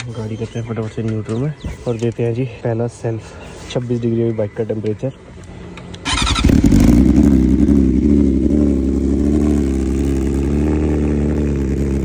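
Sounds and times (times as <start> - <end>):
motorcycle engine starting and idling: 6.0 - 12.0.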